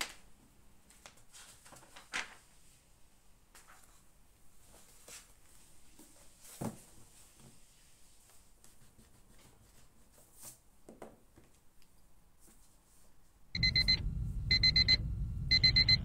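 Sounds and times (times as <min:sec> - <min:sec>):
low buzz: 0:13.6 - 0:16.0
timer alarm beeping: 0:13.6 - 0:16.0.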